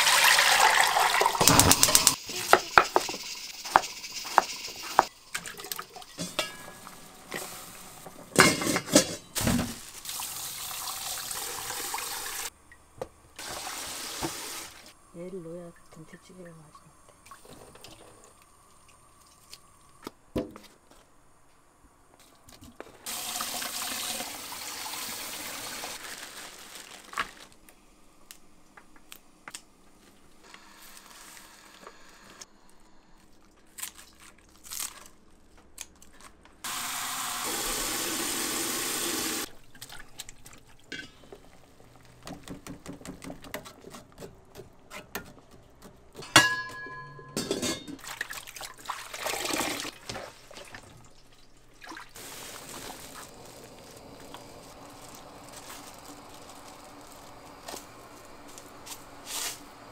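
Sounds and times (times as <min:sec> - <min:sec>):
kitchen clicks and knocks: 0:01.4 - 0:05.1, 0:08.2 - 0:09.7, 0:42.2 - 0:48.0.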